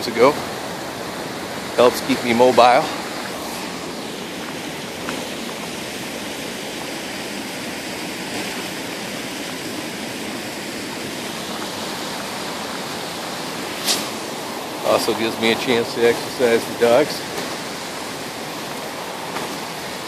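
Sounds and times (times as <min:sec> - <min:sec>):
creek water rushing over rocks: 0:00.0 - 0:20.0.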